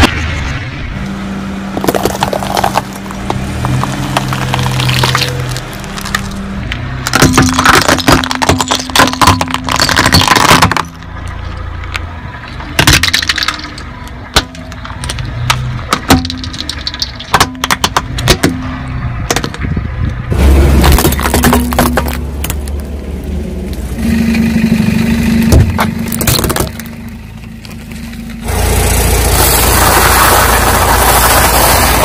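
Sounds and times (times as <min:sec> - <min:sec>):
car tyre crushing objects: 0:00.0 - 0:32.0
hard plastic cracking: 0:01.8 - 0:06.4, 0:07.0 - 0:12.1, 0:12.7 - 0:18.6, 0:25.6 - 0:27.8.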